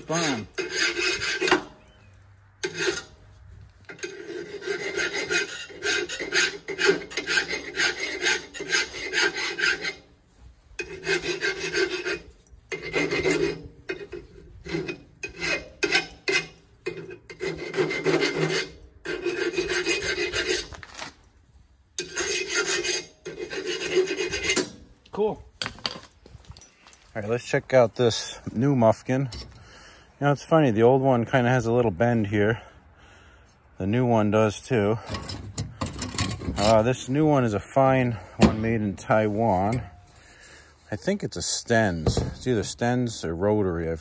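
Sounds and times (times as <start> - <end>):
hand file rasping on steel pipe: 0.0 - 1.8, 2.6 - 3.2, 3.9 - 10.1, 10.8 - 20.8, 22.0 - 24.8.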